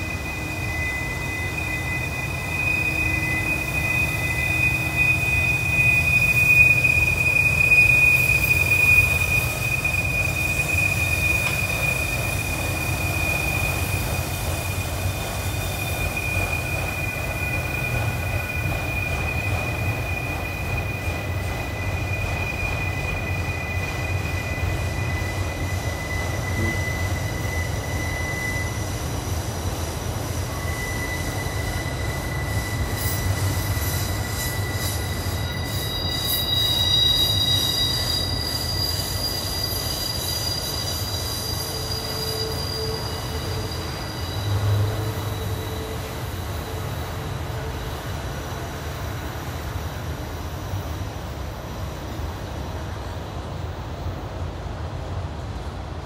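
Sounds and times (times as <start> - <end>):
train wheels squealing: 0.0 - 55.7
train low rumble: 0.0 - 56.0.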